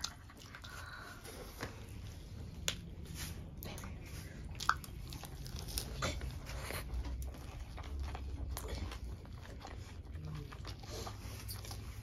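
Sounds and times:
chewing lettuce wraps: 0.0 - 12.0.

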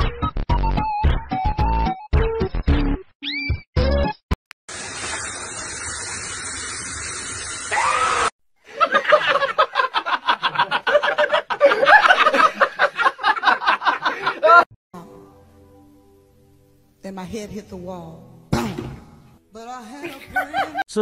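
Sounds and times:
shower spray hissing: 4.7 - 8.3
person giggling: 10.4 - 14.6, 20.0 - 20.8.

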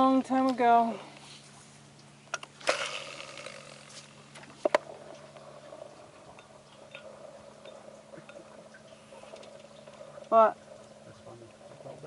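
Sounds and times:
fishing rod clicks: 2.3 - 4.9
spinning reel whirring: 2.5 - 12.0.

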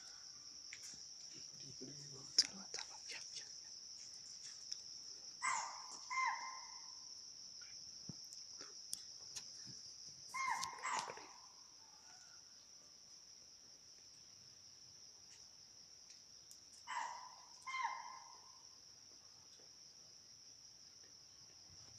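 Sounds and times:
crickets trilling: 0.0 - 21.9
animal barking: 5.4 - 6.8, 10.3 - 11.4, 16.9 - 18.4.

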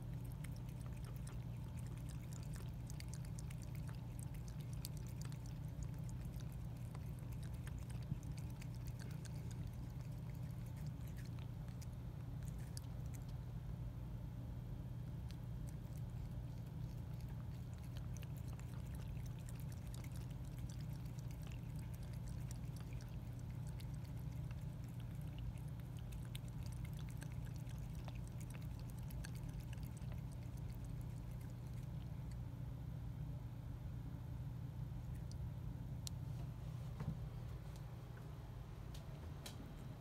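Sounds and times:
cat lapping water: 0.0 - 13.5, 15.1 - 32.5
low hum: 0.0 - 40.0.

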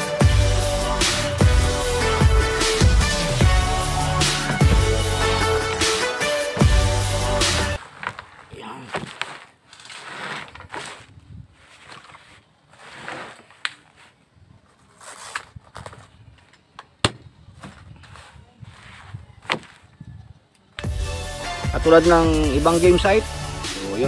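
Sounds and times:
fabric rustling: 7.8 - 16.5, 17.6 - 20.0.

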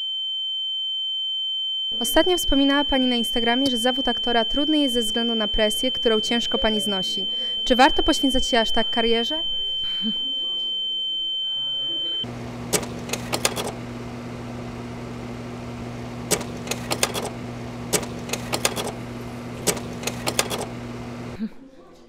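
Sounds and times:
high steady ringing tone: 0.0 - 12.3
camera shutters clicking: 12.7 - 13.8, 16.3 - 19.0, 19.6 - 20.7.

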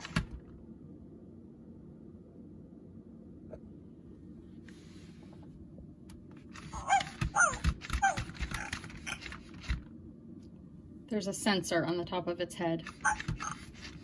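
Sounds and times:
toy motor clicks and thumps: 6.5 - 9.9, 12.8 - 14.0
toy dog barking: 6.7 - 9.4, 12.9 - 13.8.

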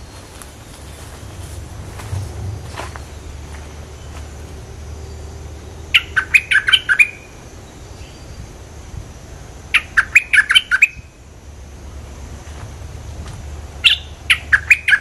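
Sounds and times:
bird singing bubbly notes: 5.1 - 7.4, 9.7 - 11.1, 13.8 - 15.0.

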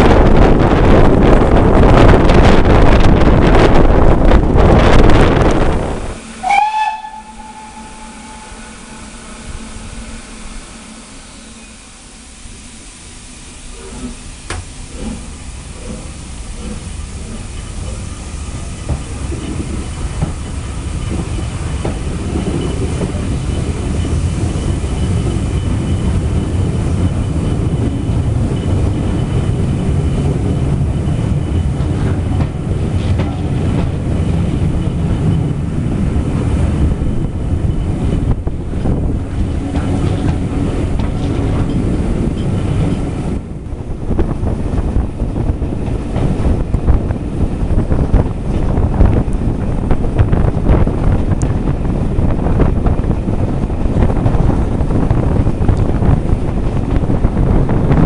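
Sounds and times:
coach wheels clattering over rail joints: 13.8 - 58.0.

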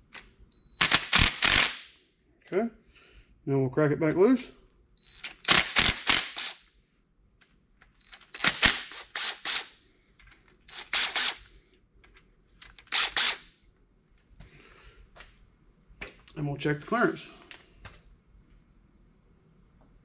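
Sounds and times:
impact driver rattling: 8.3 - 9.7.

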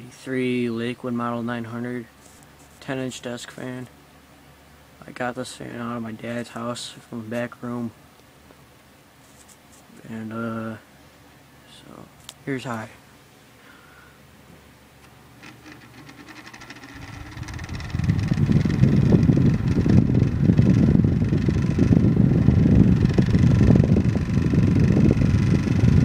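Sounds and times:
fan motor humming: 11.5 - 26.0
air rush buffeting microphone: 16.0 - 26.0.

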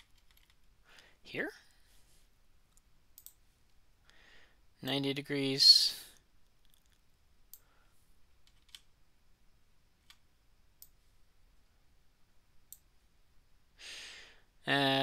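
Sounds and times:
computer mouse clicks: 2.7 - 3.4, 8.5 - 8.9.

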